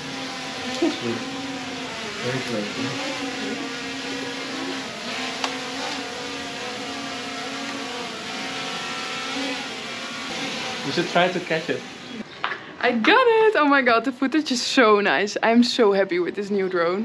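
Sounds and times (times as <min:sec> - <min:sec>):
drone buzzing hum: 0:00.0 - 0:12.2.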